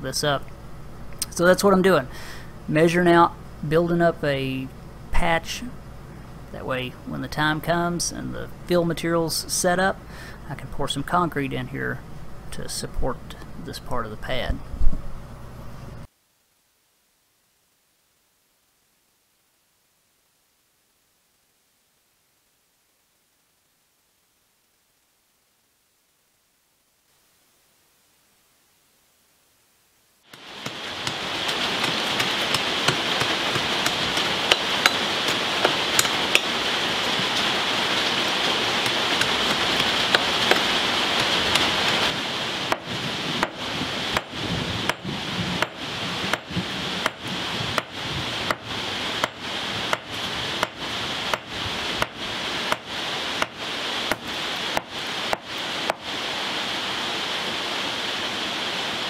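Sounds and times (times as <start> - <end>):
steady loud noise: 0.0 - 16.1, 30.1 - 59.0
sledgehammer blows: 30.4 - 56.1.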